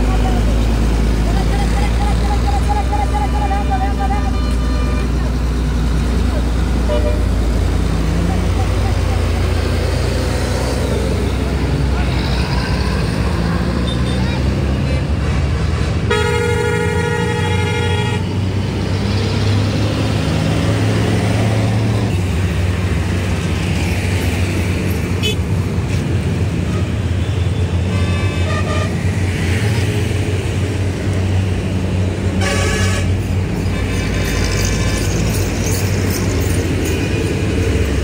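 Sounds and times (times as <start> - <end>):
vehicle horn blaring: 6.9 - 7.3, 16.1 - 18.3, 27.8 - 29.0, 32.4 - 35.1.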